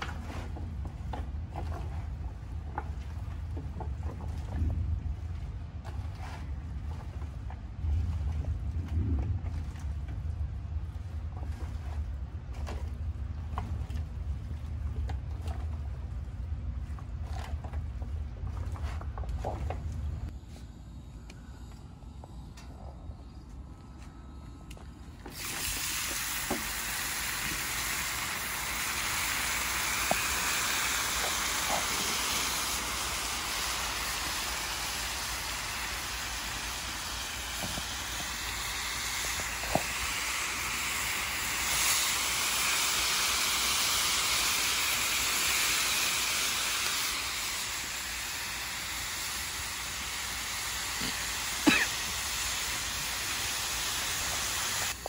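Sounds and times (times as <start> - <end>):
food sizzling on a griddle: 25.8 - 55.0.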